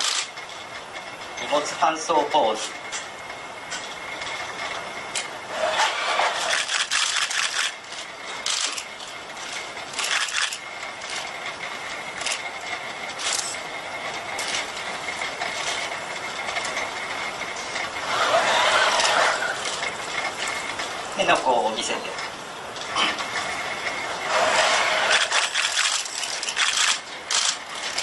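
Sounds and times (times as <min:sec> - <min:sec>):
robot motors whirring and clicking: 0:00.0 - 0:00.3, 0:05.1 - 0:11.3, 0:18.0 - 0:20.6, 0:24.3 - 0:28.0
steady high whine: 0:00.0 - 0:28.0.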